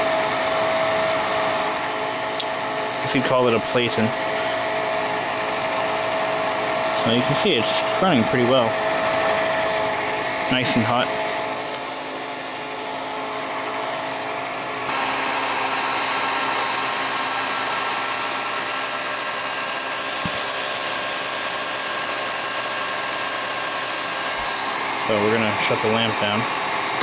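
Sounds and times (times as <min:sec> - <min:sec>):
film projector motor whirring: 0:00.0 - 0:27.0.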